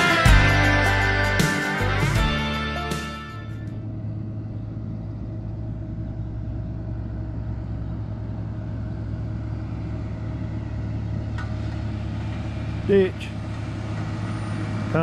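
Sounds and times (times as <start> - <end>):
vehicle engine idling: 3.4 - 15.0.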